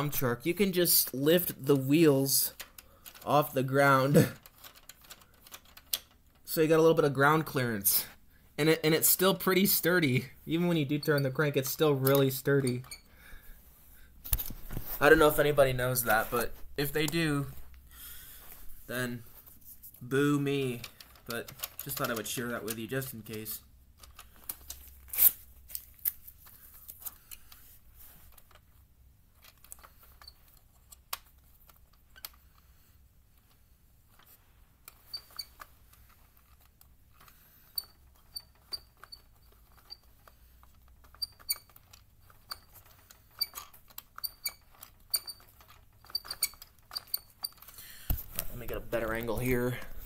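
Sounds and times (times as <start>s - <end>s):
toy conveyor squeaking when cranked: 35.0s - 36.1s, 37.3s - 47.8s.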